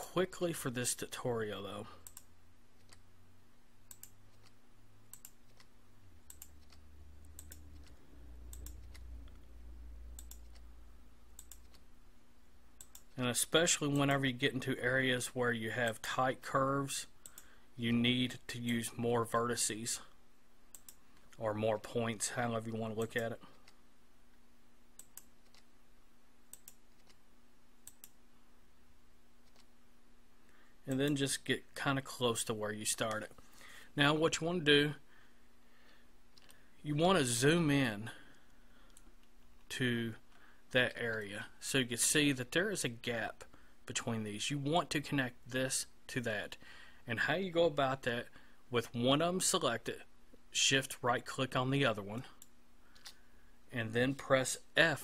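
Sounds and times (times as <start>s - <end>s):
faint low hum: 0.0s - 55.0s
keyboard and mouse clicks: 3.9s - 9.5s, 10.2s - 10.6s, 11.4s - 11.8s, 20.7s - 21.4s, 25.0s - 25.7s, 26.5s - 27.2s, 27.8s - 28.2s.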